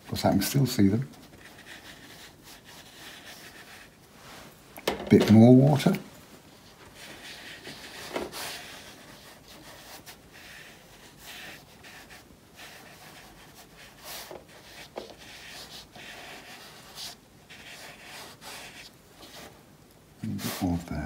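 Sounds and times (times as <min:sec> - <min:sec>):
brush rubbing on paper: 0:01.0 - 0:04.4, 0:06.5 - 0:19.6, 0:20.2 - 0:20.8.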